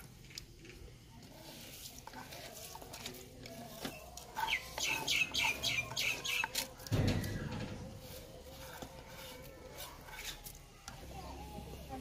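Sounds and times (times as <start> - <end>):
chicken clucking: 4.2 - 6.8.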